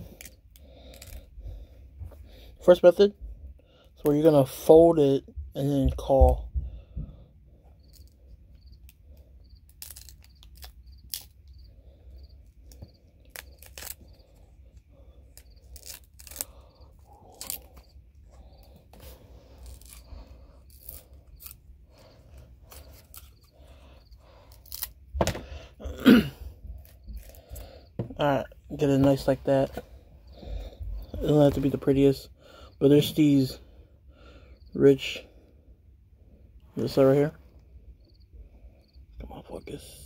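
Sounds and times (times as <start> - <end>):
stalk crackling as folded: 9.7 - 11.5, 12.6 - 25.0.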